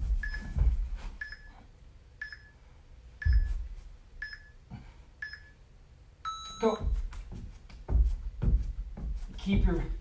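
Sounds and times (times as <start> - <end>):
interval timer beeping: 0.1 - 1.6, 2.2 - 2.6, 3.2 - 3.6, 4.2 - 4.6, 5.2 - 5.6, 6.2 - 7.1.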